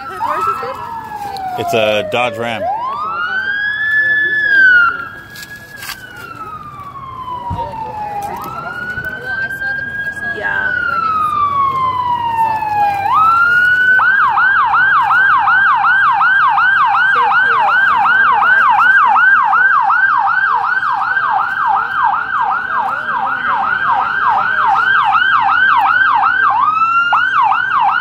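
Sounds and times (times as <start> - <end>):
emergency siren wail and yelp: 0.0 - 28.0.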